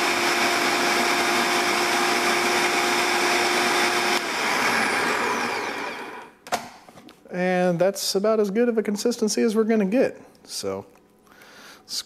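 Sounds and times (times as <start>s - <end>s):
food processor motor running: 0.0s - 6.3s.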